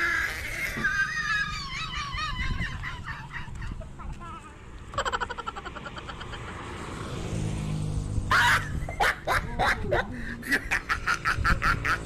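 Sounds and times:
short laughing bursts: 0:08.3 - 0:12.0.

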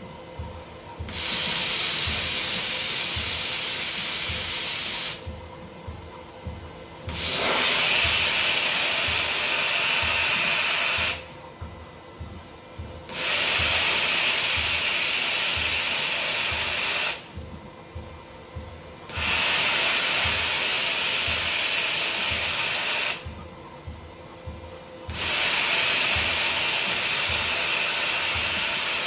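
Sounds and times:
faint low throb: 0:00.0 - 0:01.3, 0:05.2 - 0:07.3, 0:11.2 - 0:13.8, 0:23.2 - 0:25.5
compressed air hissing: 0:01.1 - 0:05.3, 0:07.1 - 0:11.3, 0:13.1 - 0:17.3, 0:19.1 - 0:23.2, 0:25.1 - 0:29.0.

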